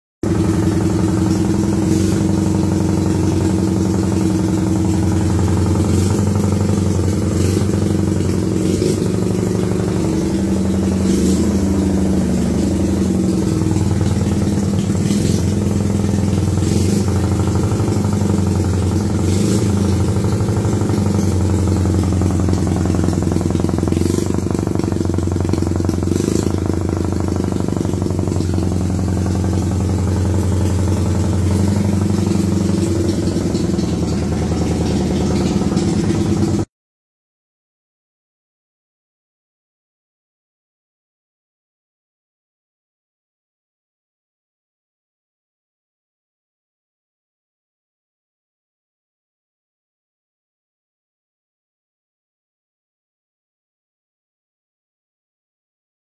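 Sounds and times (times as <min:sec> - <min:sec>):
motorcycle engine idling: 0:00.2 - 0:36.7.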